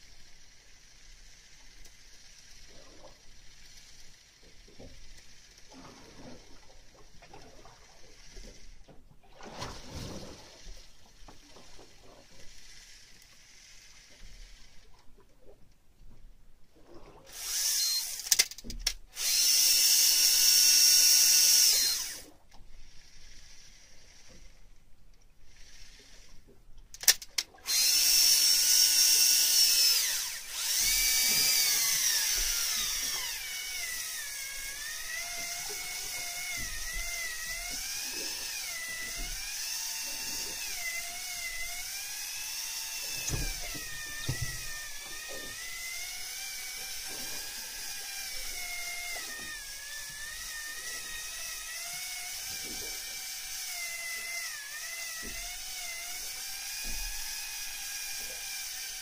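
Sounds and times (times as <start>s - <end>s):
fishing reel motor whining: 0.0s - 8.9s, 10.2s - 11.6s, 12.2s - 15.0s, 17.3s - 24.8s, 25.4s - 59.0s.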